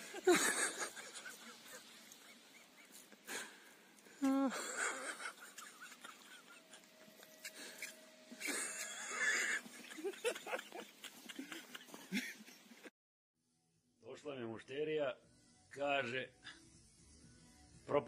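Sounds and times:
person laughing and wheezing: 0:00.0 - 0:12.9.

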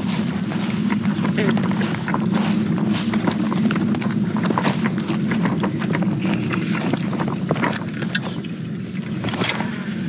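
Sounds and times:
footsteps through grass: 0:00.0 - 0:07.6
low steady rumble: 0:00.0 - 0:10.0.

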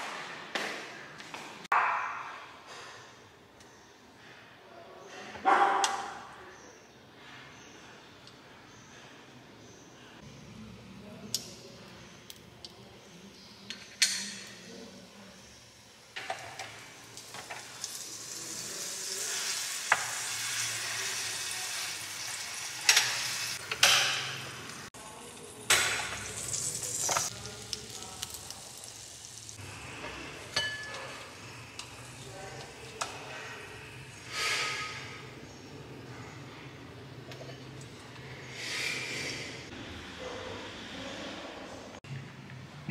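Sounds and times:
dough sizzling in waffle maker: 0:16.2 - 0:24.8.

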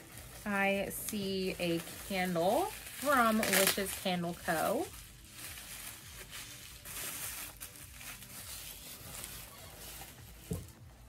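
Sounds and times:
bubble wrap rustling: 0:00.0 - 0:11.0.

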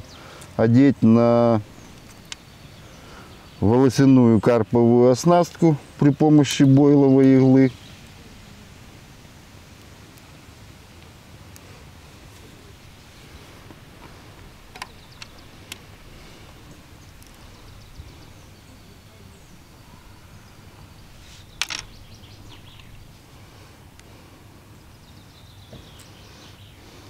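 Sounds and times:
faint bird calls: 0:00.0 - 0:03.8, 0:11.5 - 0:27.0.

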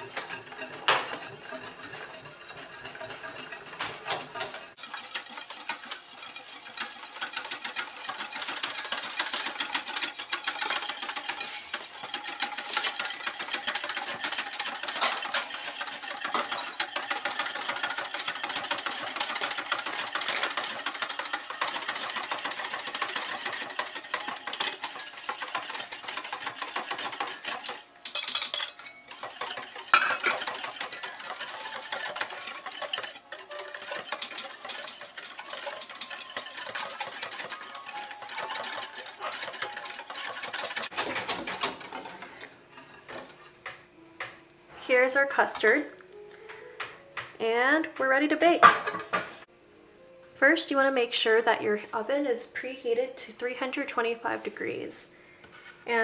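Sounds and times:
whisk rattling against saucepan: 0:00.0 - 0:42.5.

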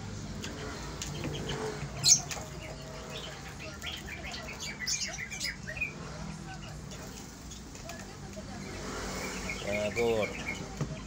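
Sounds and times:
birds squawking and chirping: 0:00.2 - 0:11.0.

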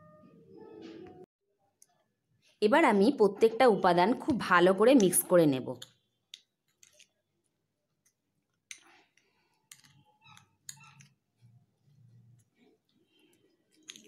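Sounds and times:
metal spoon stirring paste in bowl: 0:05.8 - 0:14.0.

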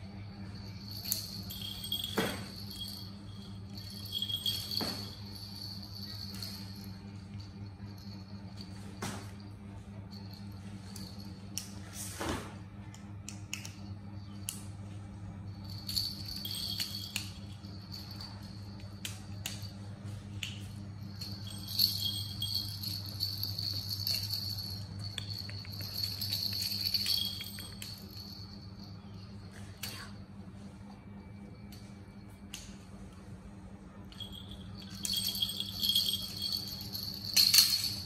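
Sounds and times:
steady low hum: 0:00.0 - 0:38.0
toy bells jingling and clicking: 0:00.1 - 0:09.2, 0:10.0 - 0:11.8, 0:15.5 - 0:30.2, 0:34.1 - 0:38.0.

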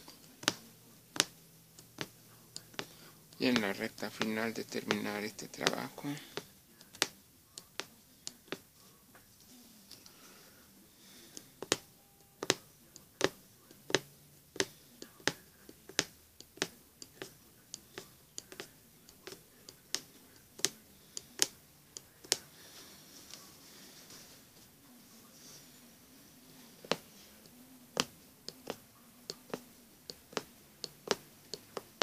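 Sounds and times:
punch needle clicking through fabric: 0:00.0 - 0:08.6, 0:13.2 - 0:22.4, 0:28.0 - 0:32.0.

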